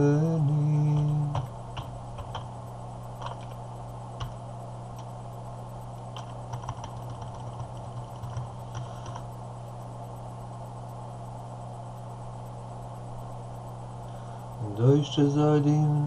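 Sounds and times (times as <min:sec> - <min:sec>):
low electrical hum: 0:00.0 - 0:16.0
computer keys clicking: 0:00.4 - 0:02.5, 0:03.2 - 0:03.6, 0:04.2 - 0:05.1, 0:06.0 - 0:09.4.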